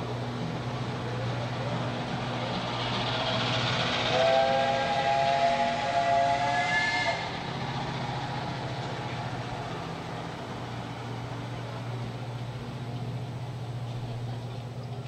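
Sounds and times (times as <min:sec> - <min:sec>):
steam locomotive whistle: 0:04.1 - 0:07.4
steady low hum: 0:07.1 - 0:15.0.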